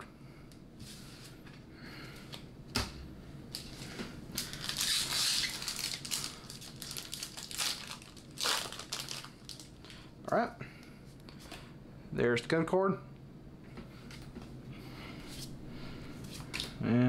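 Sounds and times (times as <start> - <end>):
foil wrapper crinkling and tearing: 3.6 - 10.0.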